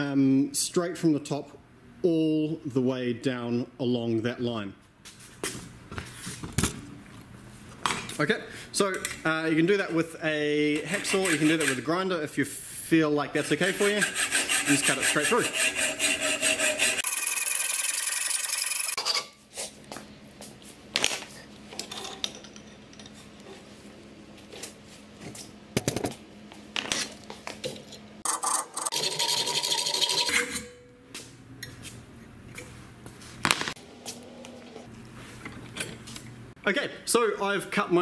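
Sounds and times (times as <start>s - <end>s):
rasping scrape: 10.8s - 11.9s, 13.6s - 17.1s
hacksaw cutting steel tube: 10.8s - 12.0s, 13.6s - 19.4s, 28.2s - 30.8s.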